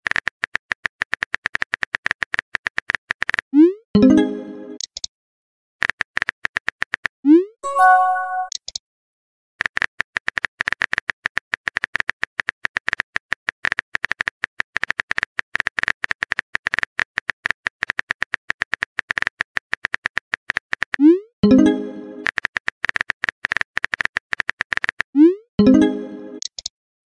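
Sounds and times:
brief electronic tone: 0:07.6 - 0:08.5.

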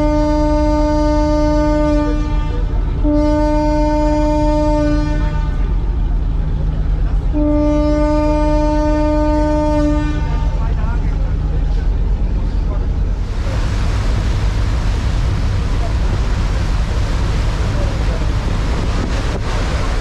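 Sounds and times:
ship's horn blasts: 0:00.0 - 0:06.4, 0:07.1 - 0:11.2
low engine rumble: 0:00.0 - 0:20.0.

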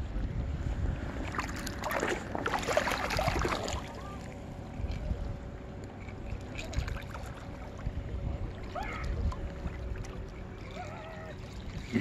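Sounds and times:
water lapping and sloshing: 0:00.0 - 0:12.0
wind rumble on microphone: 0:00.0 - 0:12.0
water splashing: 0:01.2 - 0:04.4, 0:06.2 - 0:12.0.

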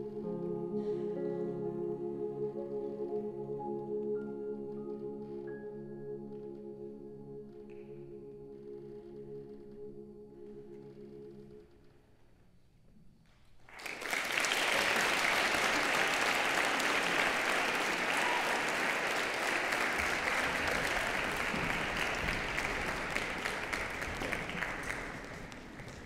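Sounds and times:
audience applauding: 0:13.7 - 0:26.0.

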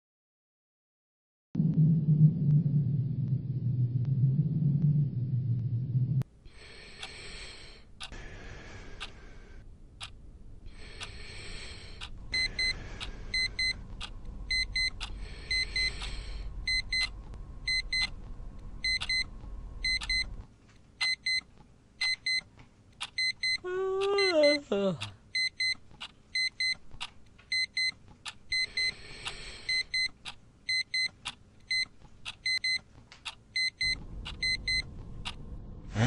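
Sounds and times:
low rumble: 0:01.6 - 0:06.2, 0:33.8 - 0:36.0
regular clicks: 0:06.8 - 0:08.2, 0:08.9 - 0:09.3, 0:10.8 - 0:35.4
digital alarm clock beeping: 0:12.0 - 0:13.8, 0:14.5 - 0:18.1, 0:18.8 - 0:20.3, 0:21.0 - 0:21.4, 0:22.0 - 0:22.4, 0:23.0 - 0:23.6, 0:25.4 - 0:25.8, 0:26.4 - 0:26.8, 0:27.5 - 0:32.8, 0:33.6 - 0:34.9.

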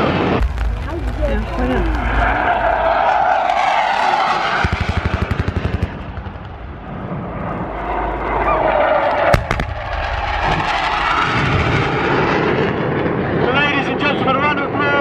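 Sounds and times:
pyrotechnic charges detonating: 0:00.0 - 0:07.3, 0:09.2 - 0:13.2
steady drone: 0:06.0 - 0:13.3
sharp bang: 0:09.3 - 0:12.0.

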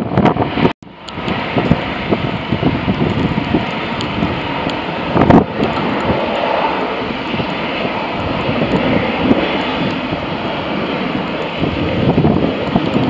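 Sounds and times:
jet engines rushing: 0:00.0 - 0:13.0.

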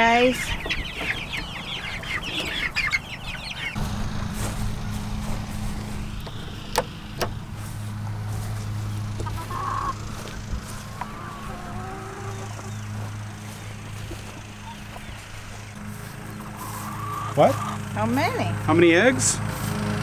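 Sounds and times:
chicks peeping: 0:00.0 - 0:18.5
steady low hum: 0:00.0 - 0:18.7.

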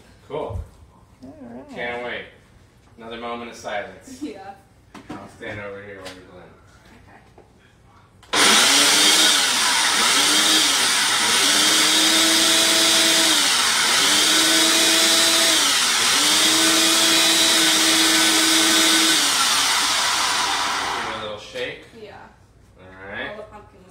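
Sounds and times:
electric blender running: 0:08.3 - 0:21.4.

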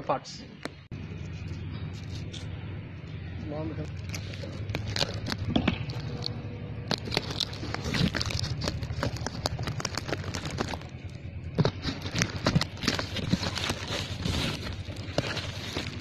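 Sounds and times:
tape and cardboard ripping: 0:04.0 - 0:16.0.

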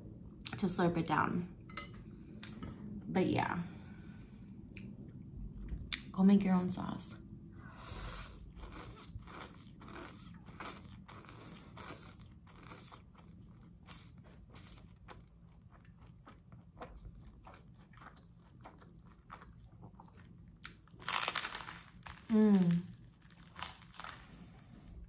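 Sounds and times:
chewing with wet mouth clicks: 0:08.7 - 0:20.8.

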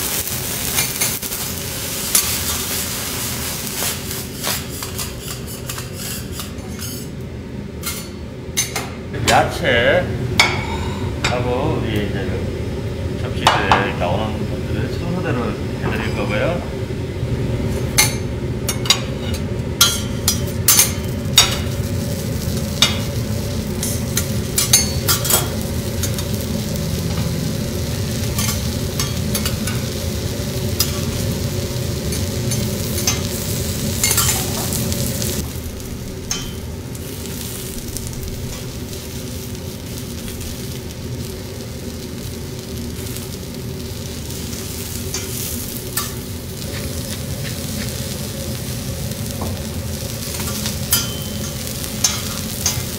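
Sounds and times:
vegetables frying on griddle: 0:00.0 - 0:07.1, 0:18.8 - 0:52.9
metal spatula clinking on steel: 0:32.1 - 0:33.3, 0:34.0 - 0:34.6, 0:50.9 - 0:52.9.

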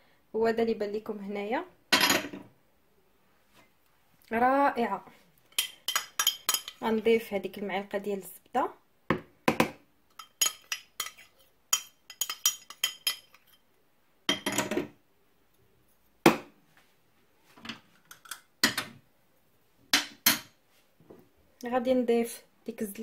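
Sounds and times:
metal spoon tapping bowl: 0:05.5 - 0:06.8, 0:10.1 - 0:13.6.

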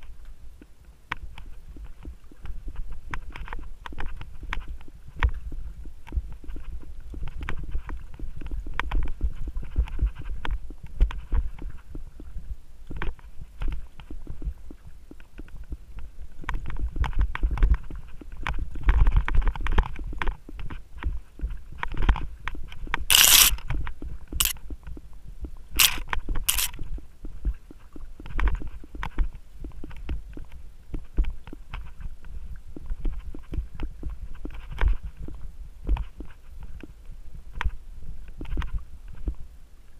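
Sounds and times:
mountain bike rattling on dirt: 0:23.1 - 0:23.6, 0:25.8 - 0:26.7.

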